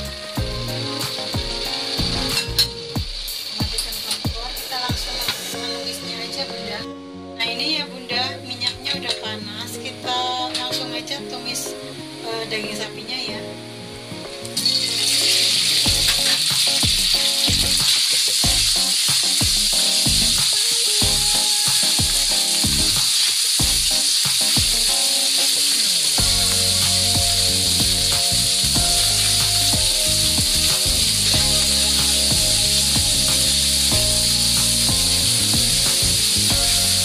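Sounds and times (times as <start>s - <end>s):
spatula stir-frying in wok: 0.0s - 6.1s, 14.6s - 37.0s
meat sizzling in oil: 0.0s - 6.4s, 14.5s - 37.0s
background music: 0.0s - 37.0s.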